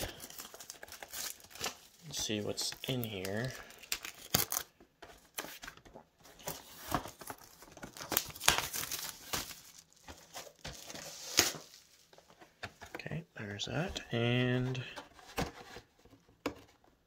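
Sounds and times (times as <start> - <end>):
packaging clicks: 0.0 - 5.4
packaging crinkling and tearing: 0.0 - 12.2.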